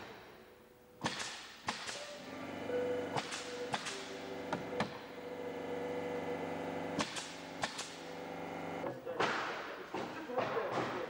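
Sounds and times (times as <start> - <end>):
nail gun firing into wood: 1.0 - 2.3, 3.2 - 4.1, 7.0 - 8.1
steady motor hum: 2.1 - 8.9.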